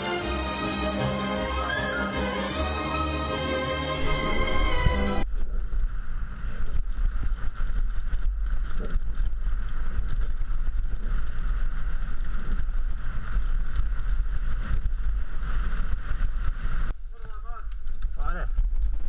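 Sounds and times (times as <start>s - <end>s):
bike tyres rumbling on dirt: 5.2s - 19.0s
bike knocking and rattling: 5.3s - 16.9s.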